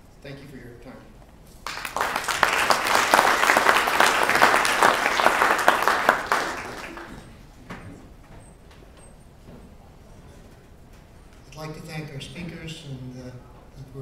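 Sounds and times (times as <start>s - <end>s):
audience applauding: 1.6s - 7.4s.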